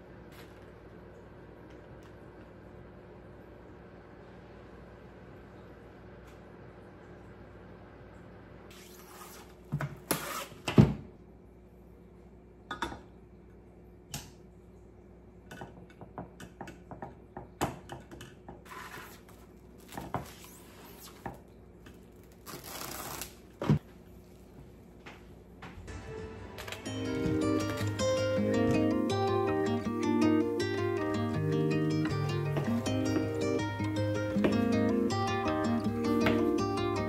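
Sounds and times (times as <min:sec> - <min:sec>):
plastic bag rustling: 0:18.7 - 0:21.3, 0:21.9 - 0:24.5.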